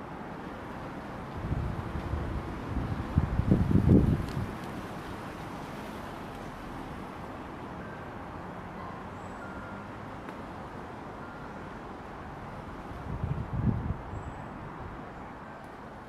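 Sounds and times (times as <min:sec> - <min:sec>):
distant road traffic hum: 0:00.0 - 0:16.0
wind rumble on microphone: 0:01.2 - 0:05.4, 0:12.7 - 0:15.1.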